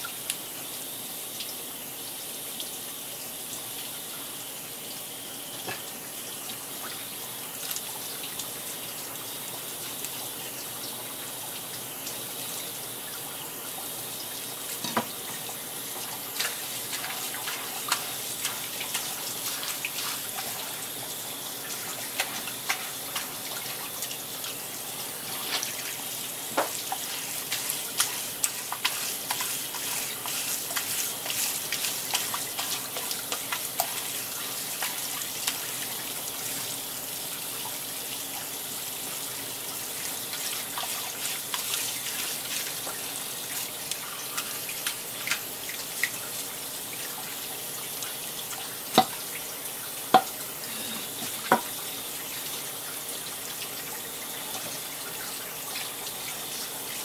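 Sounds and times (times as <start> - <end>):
tap water splashing: 5.6 - 5.9, 14.8 - 20.9, 21.6 - 24.6, 25.2 - 36.7, 40.1 - 46.3, 48.0 - 49.4, 50.0 - 50.4, 51.2 - 51.8
hands tapping and splashing: 26.5 - 35.8, 48.9 - 49.2.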